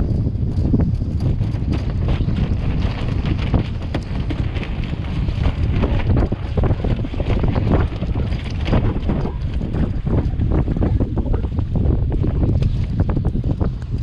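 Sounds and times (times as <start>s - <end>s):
sailcloth flapping: 0.0s - 14.0s
wind buffeting microphone: 0.0s - 14.0s
water slapping against hull: 1.6s - 11.7s.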